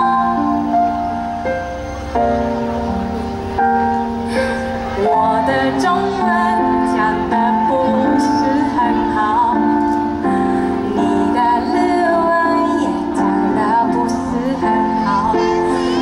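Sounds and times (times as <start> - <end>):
woman singing: 0.0 - 1.1, 5.0 - 16.0
instrumental backing of held chords: 0.0 - 16.0.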